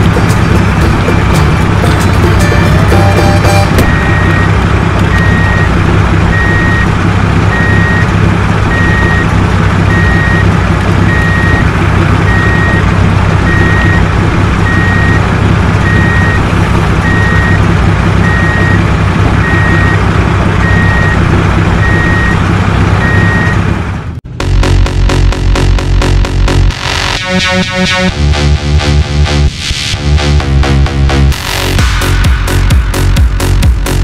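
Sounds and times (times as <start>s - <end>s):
low engine rumble: 0.0s - 34.0s
truck reversing alarm beeping: 2.4s - 22.4s, 23.0s - 23.6s.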